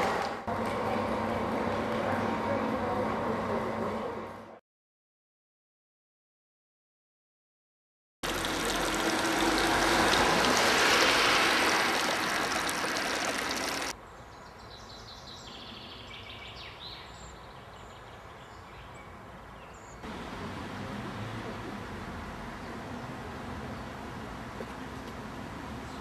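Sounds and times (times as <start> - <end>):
fountain water splashing: 8.2 - 13.9.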